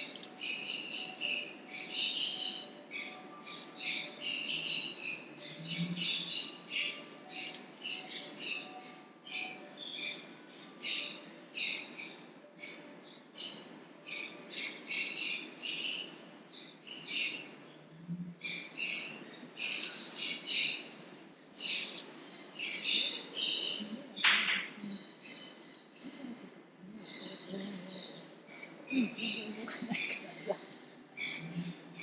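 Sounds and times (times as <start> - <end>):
small birds chirping: 0.0 - 32.0
steady low hum: 15.4 - 32.0.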